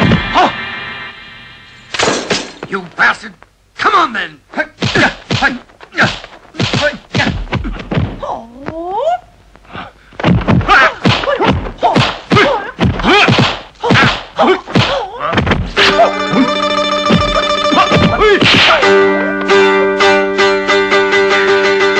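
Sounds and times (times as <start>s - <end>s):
punch sound effects thwacking: 4.8s - 8.2s, 10.2s - 16.0s, 17.9s - 18.8s
fighters grunting and shouting: 4.8s - 8.5s, 10.4s - 16.1s.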